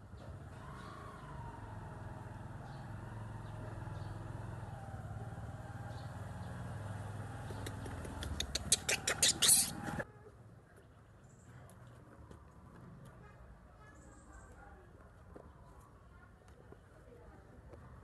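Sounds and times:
vehicle engine droning: 0:00.0 - 0:10.0
sharp clicks: 0:07.5 - 0:09.7.

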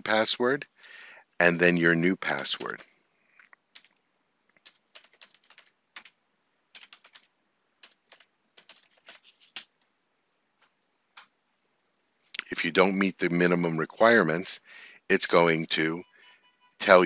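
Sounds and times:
faint keyboard typing: 0:02.0 - 0:11.4.

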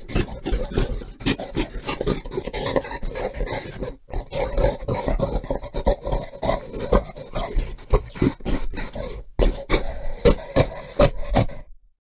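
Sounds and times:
gorilla calling: 0:00.0 - 0:11.7.

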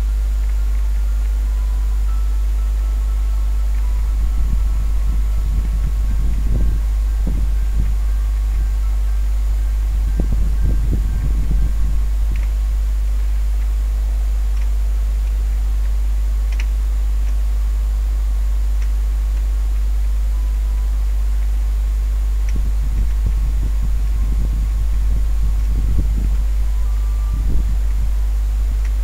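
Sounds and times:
faint hiss: 0:00.0 - 0:29.0
irregular low rumbling: 0:00.0 - 0:29.0
low electrical hum: 0:00.0 - 0:29.0
faint clicks: 0:16.5 - 0:17.4.

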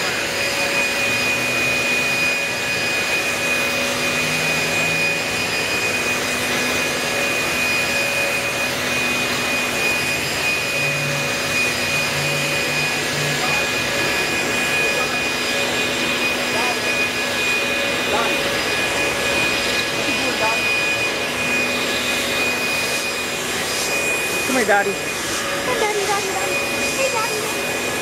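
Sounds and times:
leaf blowers running: 0:00.0 - 0:28.0.

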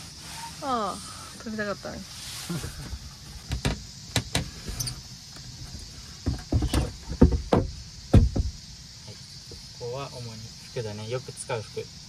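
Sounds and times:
wooden lid knocks and thumps: 0:03.4 - 0:04.8, 0:05.6 - 0:08.6.

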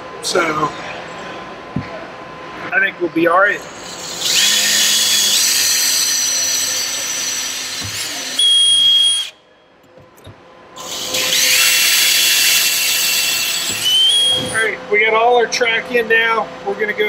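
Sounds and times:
cordless drill driving screws: 0:03.6 - 0:09.3, 0:10.8 - 0:14.6.

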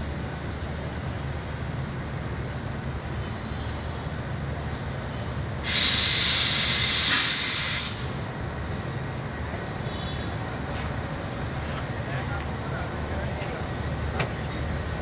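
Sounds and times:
low train rumble: 0:00.0 - 0:15.0
air brake hiss: 0:05.6 - 0:08.2.

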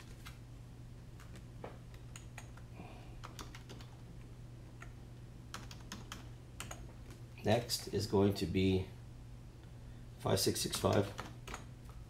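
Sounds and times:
keyboard typing: 0:01.2 - 0:04.0, 0:04.8 - 0:07.2, 0:10.8 - 0:11.7.

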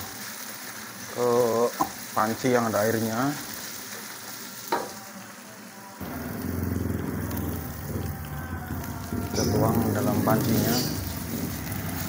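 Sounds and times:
paste sizzling in a wok: 0:00.0 - 0:12.0
low rumble of gas burner: 0:06.0 - 0:12.0
wok scrape: 0:06.0 - 0:12.0.

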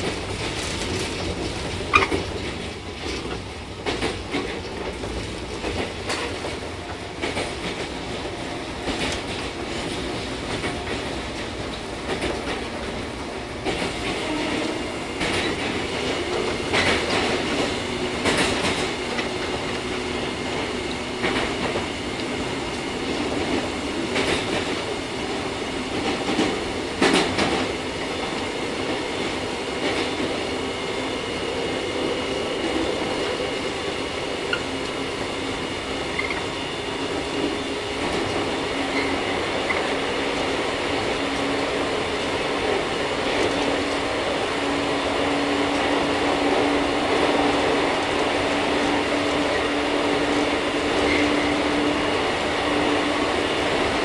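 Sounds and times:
wheels clacking over rail joints: 0:00.0 - 0:30.5
train rumble and motor drone: 0:00.0 - 0:54.0.

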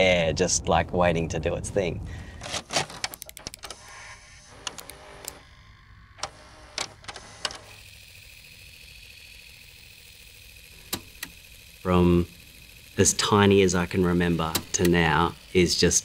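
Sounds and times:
steady low hum: 0:00.0 - 0:16.0
sharp mechanical clicks: 0:02.8 - 0:04.0, 0:04.6 - 0:05.4, 0:06.2 - 0:16.0.

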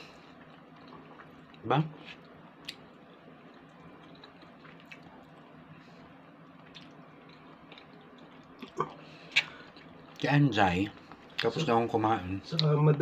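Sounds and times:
wet mouth eating sounds: 0:00.4 - 0:05.6, 0:06.5 - 0:10.2.

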